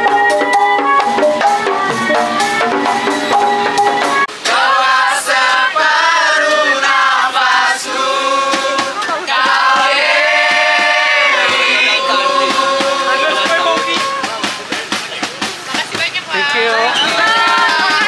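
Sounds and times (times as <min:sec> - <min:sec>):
pitched metal notes: 0:00.0 - 0:04.8, 0:06.2 - 0:16.2
group singing with guitar: 0:04.0 - 0:14.4.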